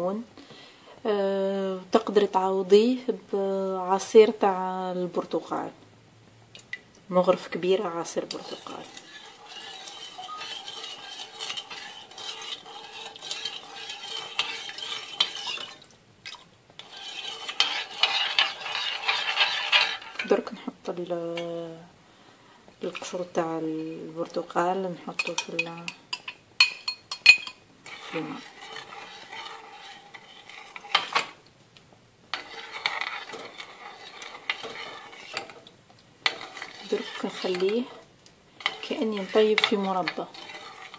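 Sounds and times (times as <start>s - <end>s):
spoon scraping a saucepan: 8.0s - 15.9s, 16.8s - 20.5s, 22.8s - 23.3s, 25.2s - 31.4s, 32.3s - 40.9s.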